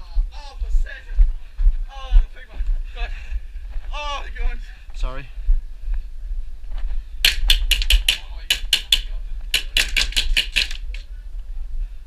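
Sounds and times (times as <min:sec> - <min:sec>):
airsoft gun bursts: 0:07.2 - 0:11.0.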